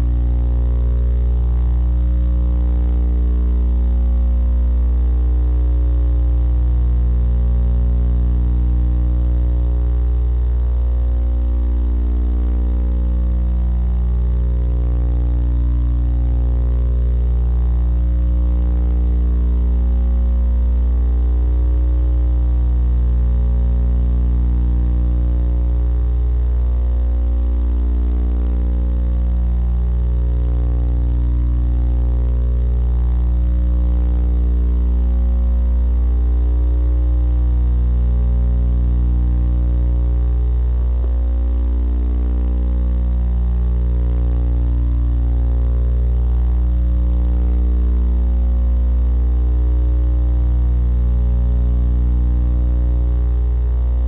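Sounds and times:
electrical hum: 0.0 - 54.0.

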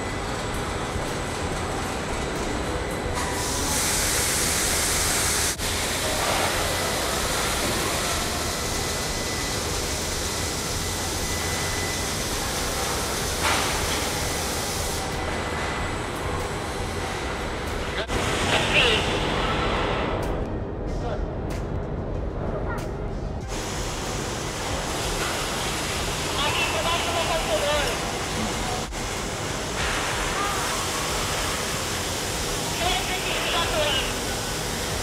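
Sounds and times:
rumbling noise with hiss: 23.4 - 35.0.

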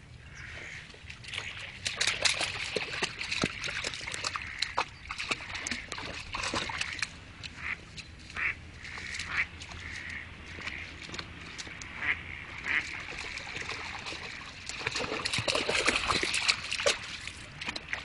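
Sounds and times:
ducks quacking: 0.2 - 1.0, 4.2 - 14.6
dog splashing in water: 1.0 - 18.0.

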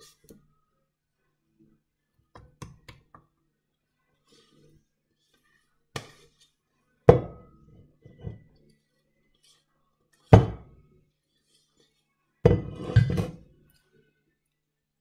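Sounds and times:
spatula scraping metal bowl: 5.3 - 6.6, 11.2 - 13.4.

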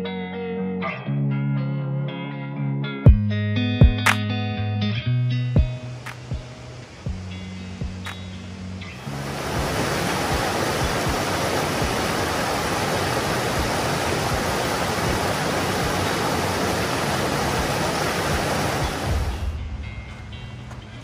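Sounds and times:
river rushing over boulders: 9.0 - 19.6.

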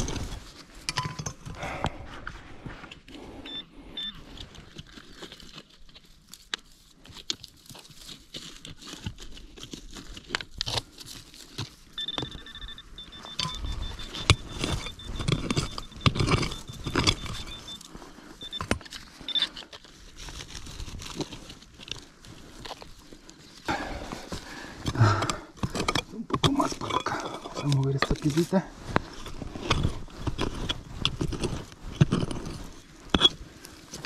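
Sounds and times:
metal detector tone and beeps: 3.4 - 4.3, 11.9 - 19.6
stones knocking and rattling: 4.3 - 17.9, 24.0 - 34.0
digger chopping and scraping dirt: 13.2 - 17.8, 23.7 - 34.0.

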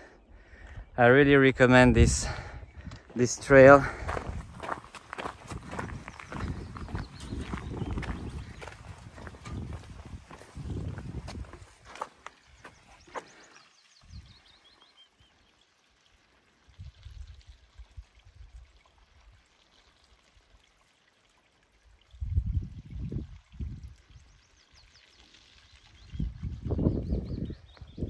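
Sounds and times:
wind buffeting microphone: 1.6 - 12.1, 14.0 - 14.5, 22.1 - 24.4, 25.9 - 28.0
faint running water: 6.1 - 26.8.

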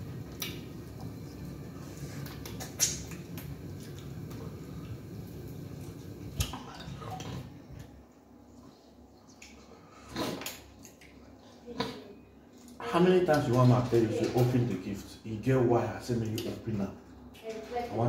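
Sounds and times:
chewing and wet mouth smacks: 0.2 - 5.0, 9.2 - 12.0.

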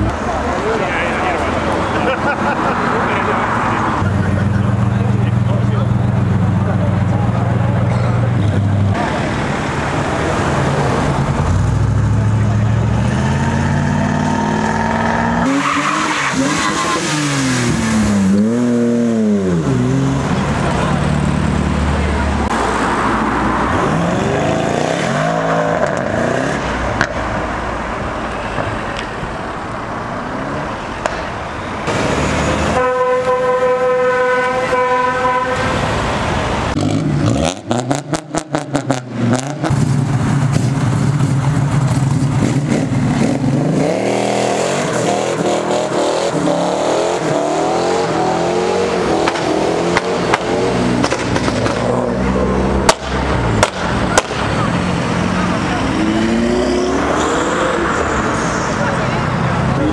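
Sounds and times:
car engines revving: 0.0 - 59.9
car horn: 32.5 - 36.0.

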